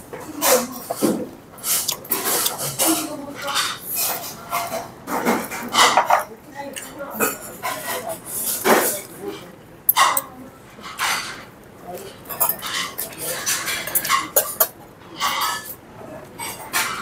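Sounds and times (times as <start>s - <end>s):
metal chopsticks clinking on dishes: 9.9s - 11.4s, 12.0s - 15.8s.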